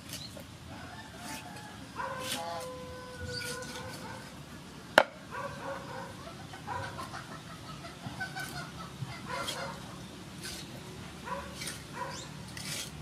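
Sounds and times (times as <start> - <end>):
animals calling: 2.0 - 4.4, 5.2 - 12.9.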